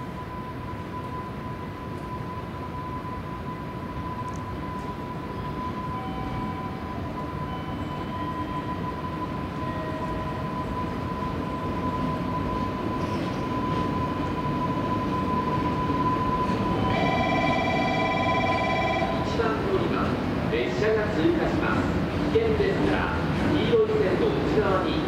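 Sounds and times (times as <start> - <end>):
freight train rumble: 0.0 - 25.0
steady multi-tone sound: 0.1 - 20.0.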